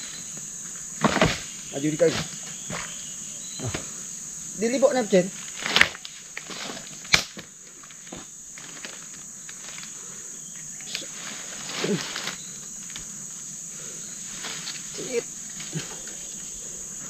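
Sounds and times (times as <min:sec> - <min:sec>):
insects droning: 0:00.0 - 0:17.0.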